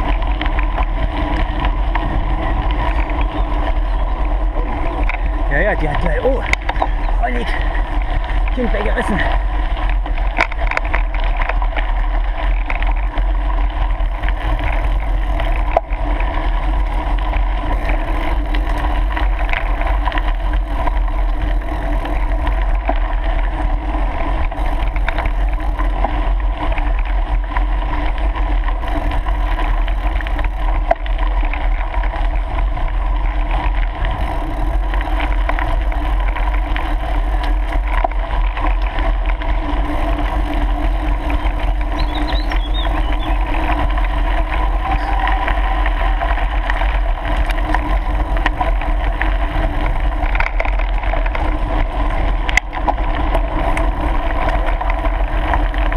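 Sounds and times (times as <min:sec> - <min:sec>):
bike tyres rolling over gravel: 0:00.0 - 0:55.9.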